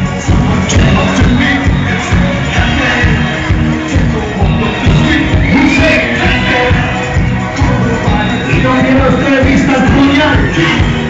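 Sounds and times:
loud dance music: 0.0 - 11.0.

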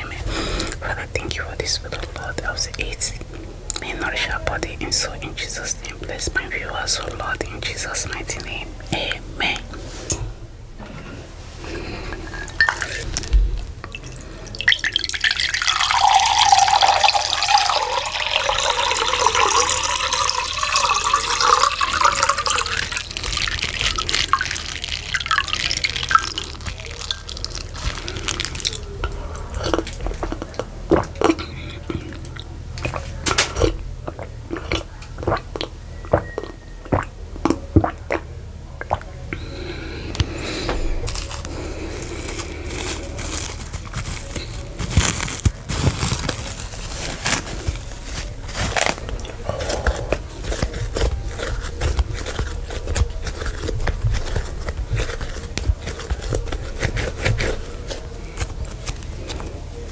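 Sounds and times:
sharp drips and clicks: 12.3 - 39.5
water splashing and trickling: 12.5 - 28.9.

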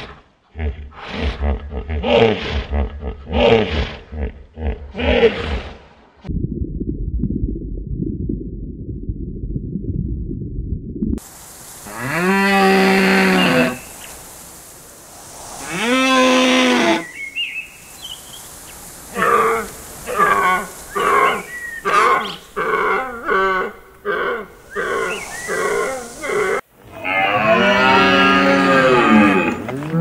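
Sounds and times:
deer calling: 12.6 - 13.9, 19.1 - 29.8.

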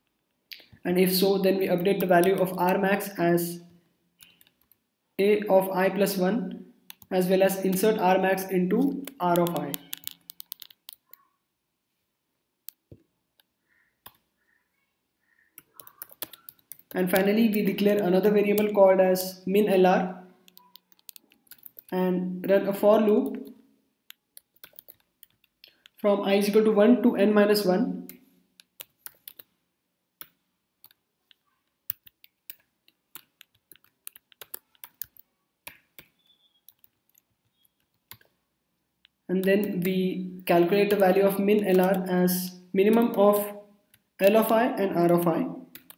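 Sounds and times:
keyboard key clicks: 8.9 - 11.1
keyboard keystroke clicks: 8.9 - 11.2, 30.2 - 38.3.

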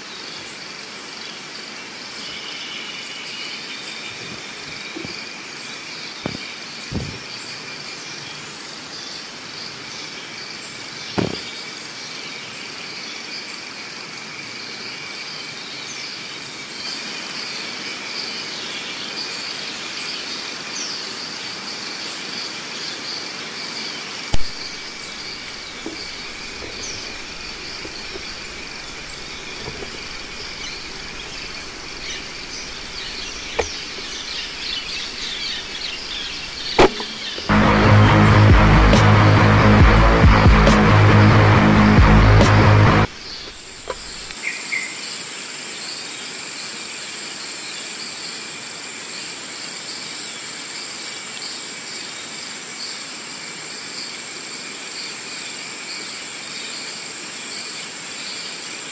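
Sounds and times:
insects buzzing: 0.0 - 58.9
sharp knocks: 6.2 - 7.2, 11.2 - 11.5, 24.4 - 37.6.

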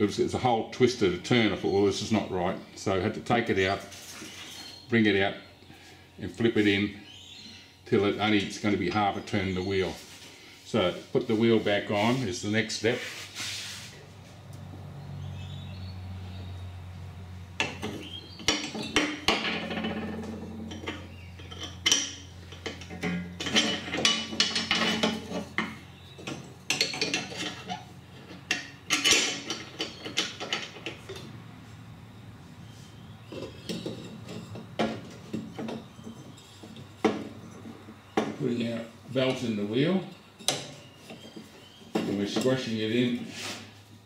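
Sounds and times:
metal parts clanking and rattling: 17.6 - 31.3, 33.2 - 38.4.

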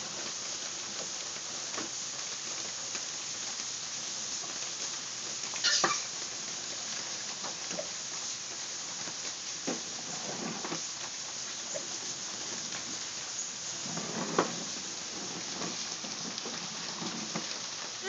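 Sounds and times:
rain on a wooden deck: 0.0 - 18.0.

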